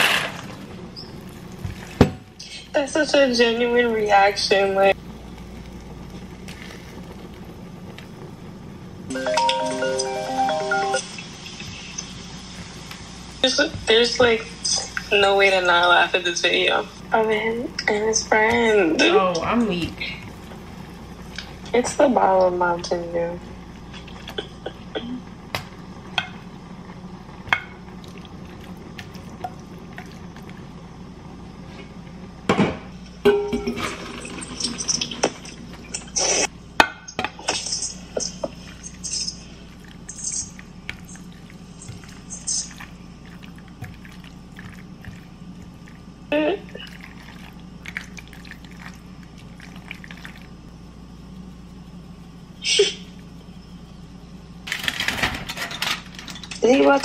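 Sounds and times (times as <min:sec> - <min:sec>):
steady low hum: 0:00.0 - 0:57.0
pots dishes and utensils clattering: 0:33.3 - 0:36.2, 0:54.8 - 0:57.0
liquid sloshing: 0:38.5 - 0:50.6.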